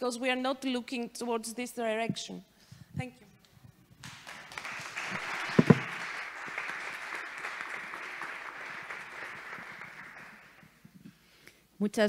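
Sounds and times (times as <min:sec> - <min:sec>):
audience applauding: 0:04.0 - 0:10.8.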